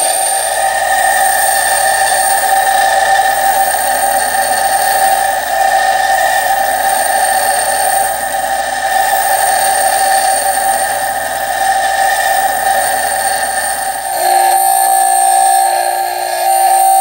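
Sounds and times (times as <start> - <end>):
bench grinder whine: 0.0 - 17.0
drill bit grinding against wheel: 0.0 - 17.0.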